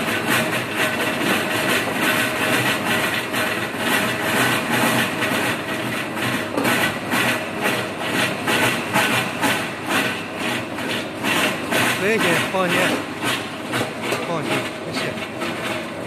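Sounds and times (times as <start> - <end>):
machine motor hum: 5.4 - 16.0.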